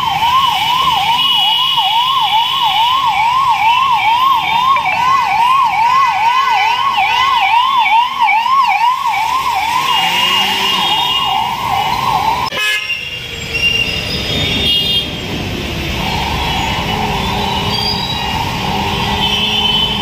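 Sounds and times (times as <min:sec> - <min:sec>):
higher-pitched siren: 0:00.0 - 0:12.6, 0:15.8 - 0:20.0
ambulance siren yelping: 0:00.0 - 0:12.8, 0:15.8 - 0:20.0
road traffic noise: 0:00.0 - 0:20.0.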